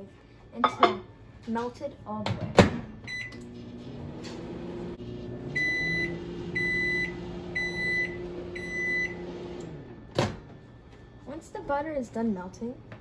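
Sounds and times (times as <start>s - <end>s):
microwave oven humming: 2.1s - 13.0s
microwave beeps: 3.0s - 3.6s, 5.4s - 10.9s.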